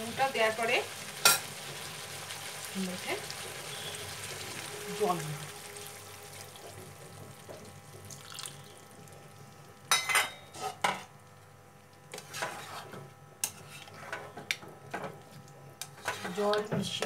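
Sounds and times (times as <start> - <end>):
spatula stirring and scraping pan: 10.4 - 11.1, 12.1 - 14.4, 15.8 - 17.0.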